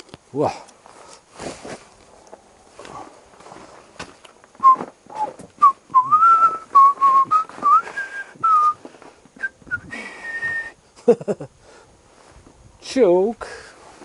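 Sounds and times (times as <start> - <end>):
person whistling a tune: 4.6 - 8.8, 9.4 - 10.8.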